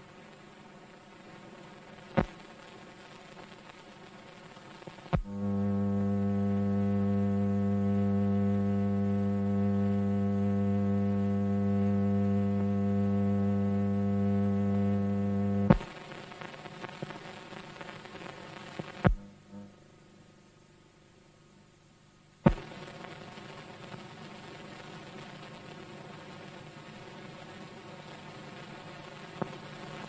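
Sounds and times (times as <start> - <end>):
faint hiss and crackle: 0.0 - 30.0
loud electrical hum: 4.8 - 26.6.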